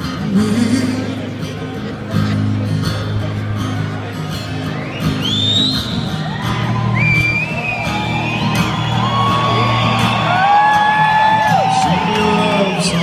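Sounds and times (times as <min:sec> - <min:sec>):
live band acoustic guitar: 0:00.0 - 0:13.0
audience whistling and whooping: 0:04.7 - 0:13.0.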